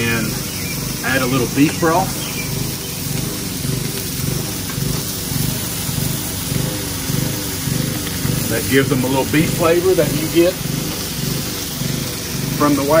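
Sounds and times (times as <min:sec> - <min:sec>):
lawnmower engine running unevenly: 0:00.0 - 0:13.0.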